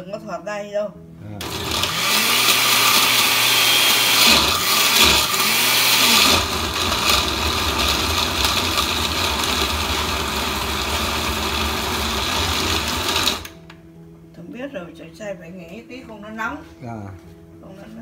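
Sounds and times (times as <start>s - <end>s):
blender whirring: 1.4s - 13.6s.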